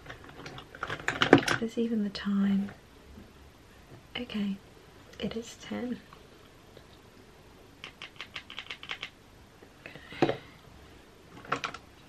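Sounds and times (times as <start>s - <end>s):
laptop keyboard typing: 7.8s - 9.2s.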